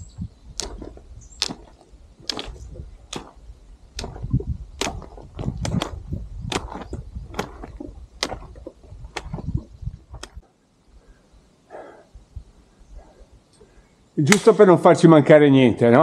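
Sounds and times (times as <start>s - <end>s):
footsteps on rocky trail: 4.0s - 10.4s.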